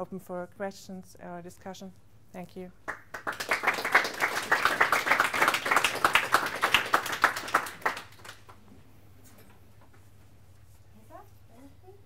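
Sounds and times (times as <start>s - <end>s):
audience applauding: 2.9s - 8.6s.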